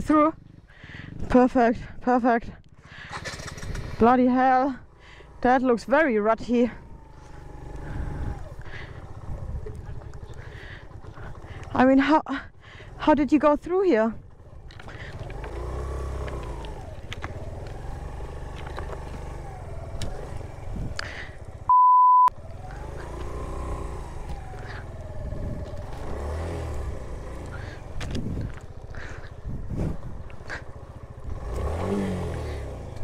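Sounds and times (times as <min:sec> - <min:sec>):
motorcycle engine revving: 0:00.0 - 0:21.7, 0:22.3 - 0:33.0
censor bleep: 0:21.7 - 0:22.3.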